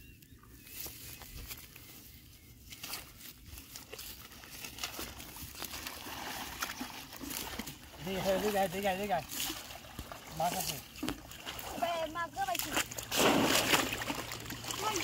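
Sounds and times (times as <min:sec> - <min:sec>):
footsteps through grass: 0:00.5 - 0:06.4.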